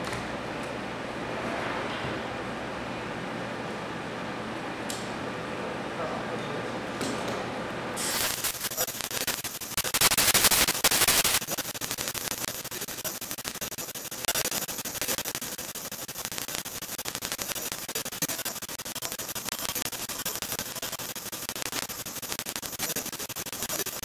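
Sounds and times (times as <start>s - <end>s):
crackling static hiss: 8.0s - 24.0s.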